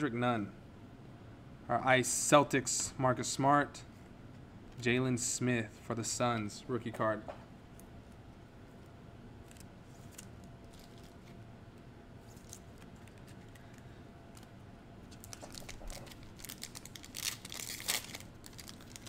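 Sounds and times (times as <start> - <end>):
foil card pack crinkling: 9.4 - 11.4, 12.3 - 14.5, 15.1 - 19.0.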